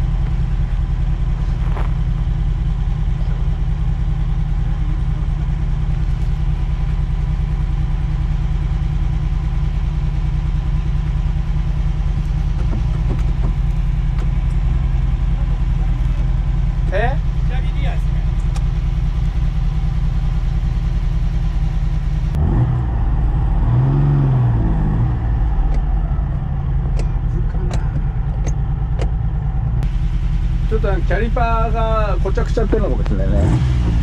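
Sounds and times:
car engine idling: 0.0s - 34.0s.

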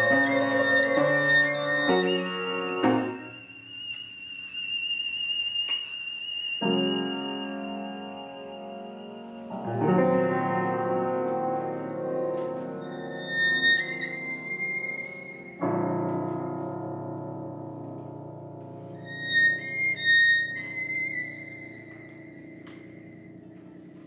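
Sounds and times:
piano chords: 0.0s - 3.9s, 6.6s - 24.0s
high held violin notes: 0.0s - 9.9s, 12.7s - 15.8s, 18.8s - 23.7s.

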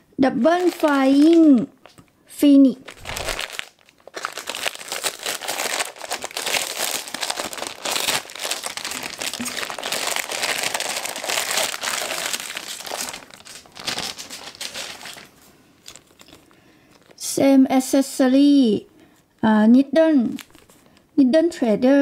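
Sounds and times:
plastic bag crinkling: 0.4s - 2.1s, 2.8s - 17.2s.

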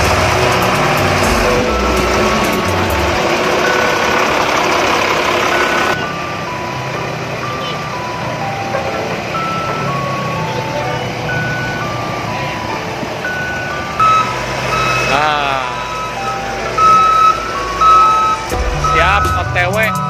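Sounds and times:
noisy rush: 0.0s - 7.4s, 11.9s - 20.0s
electronic melody with bass: 0.0s - 20.0s.

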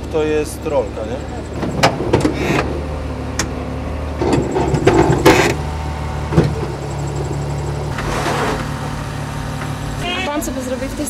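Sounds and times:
engine running at low revs: 0.0s - 11.0s
clattering knocks: 1.5s - 2.8s, 4.2s - 7.1s.

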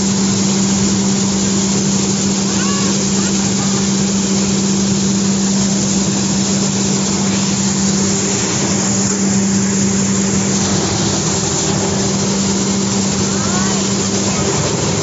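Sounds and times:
constant rushing noise: 0.0s - 15.0s
machine low hum: 0.0s - 15.0s.

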